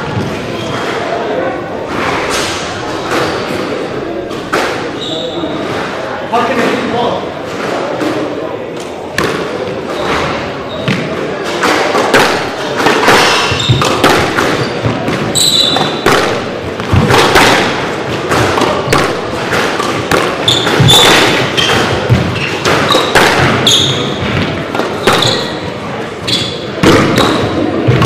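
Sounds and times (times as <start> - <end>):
shoes squeaking on wooden floor: 1.9 - 3.8, 4.4 - 6.0, 9.8 - 11.7, 12.8 - 17.4, 18.0 - 28.0
squash ball thuds: 9.1 - 25.8, 26.7 - 28.0.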